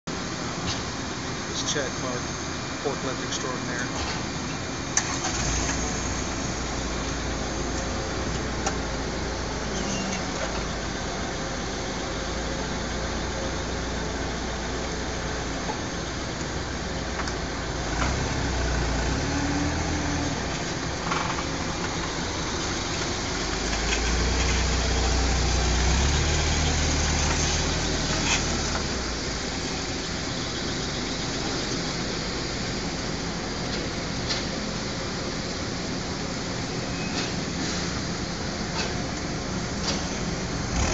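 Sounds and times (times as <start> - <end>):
forklift engine running: 0.1 - 40.9.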